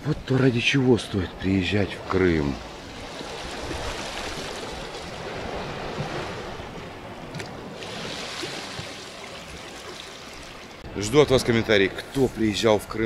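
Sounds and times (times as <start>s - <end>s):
waves washing against seawall: 1.6s - 10.8s.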